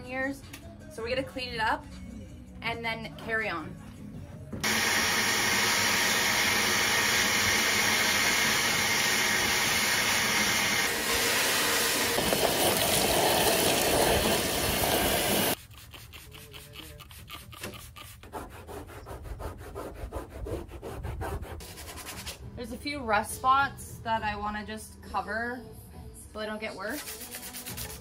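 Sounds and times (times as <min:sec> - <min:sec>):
shop vacuum sucking grit: 0:04.6 - 0:15.6.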